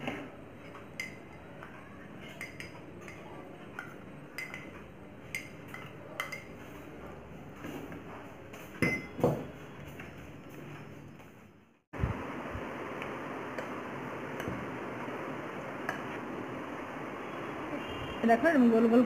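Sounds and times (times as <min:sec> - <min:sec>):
spoon clinking against glass bowls: 0:00.6 - 0:06.7, 0:08.8 - 0:09.2.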